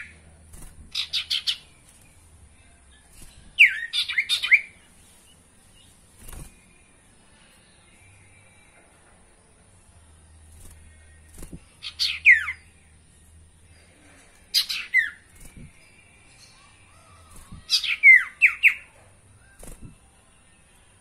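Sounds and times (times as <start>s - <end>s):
bird calling with descending notes: 16.4s - 19.6s.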